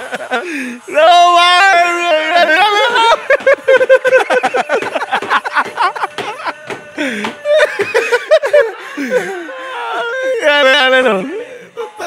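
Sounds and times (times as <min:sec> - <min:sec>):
men laughing hard: 0:00.0 - 0:00.8, 0:02.5 - 0:10.6.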